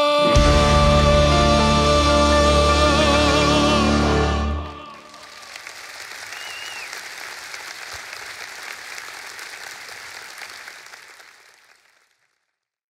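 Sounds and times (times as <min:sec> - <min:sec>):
audience applauding: 0:04.5 - 0:12.5
short high whistle: 0:06.3 - 0:06.9.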